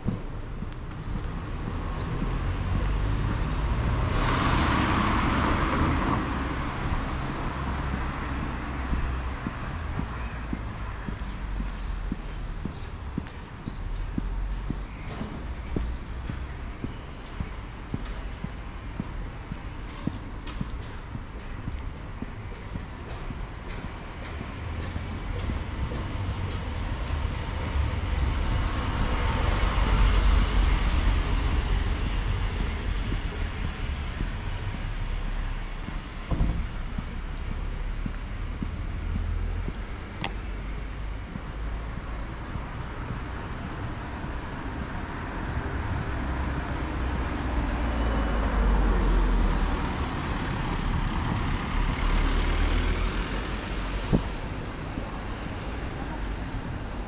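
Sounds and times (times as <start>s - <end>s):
vehicle passing by: 1.1s - 11.7s, 23.3s - 56.4s.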